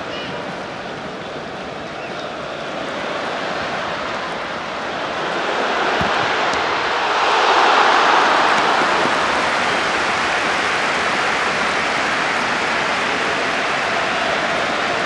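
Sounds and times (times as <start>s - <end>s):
stadium crowd noise: 0.0s - 15.0s.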